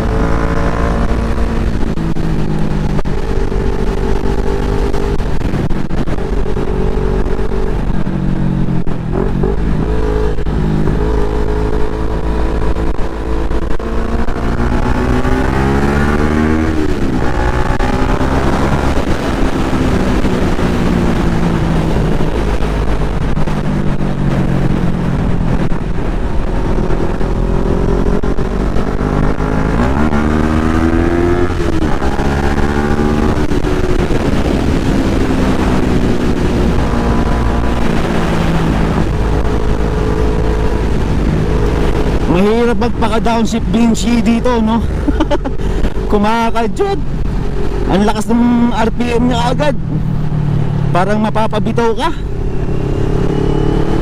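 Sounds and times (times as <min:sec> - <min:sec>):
motorcycle engine shifting gears: 0:00.0 - 0:54.0
wind buffeting microphone: 0:00.0 - 0:54.0.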